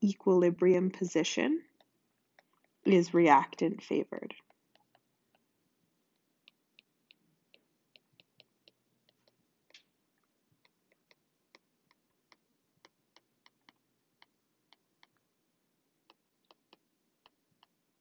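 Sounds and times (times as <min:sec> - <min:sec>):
stylus tapping on tablet screen: 0:04.4 - 0:05.5, 0:06.4 - 0:09.9, 0:10.6 - 0:15.2, 0:16.0 - 0:17.8.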